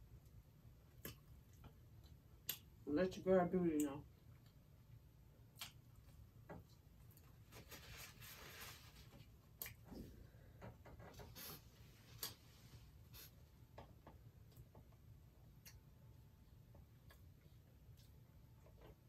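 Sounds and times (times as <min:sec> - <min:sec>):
paper napkin rustling: 0:07.4 - 0:09.3.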